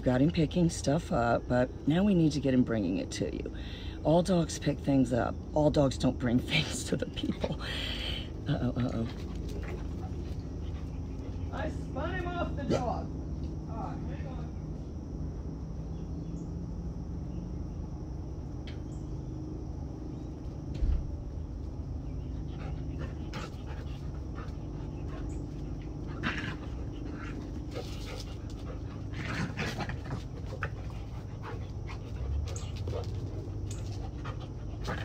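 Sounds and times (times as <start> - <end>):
dog panting: 7.1 - 11.6, 22.2 - 35.0.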